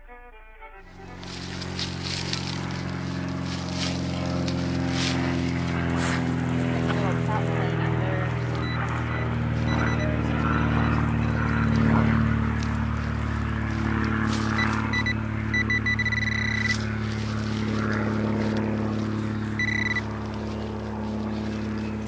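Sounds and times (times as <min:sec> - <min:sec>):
steady low hum: 0:00.0 - 0:22.0
hand digger scraping soil: 0:00.9 - 0:07.4
metal detector beeping: 0:08.6 - 0:11.8, 0:14.4 - 0:16.9, 0:19.5 - 0:20.1.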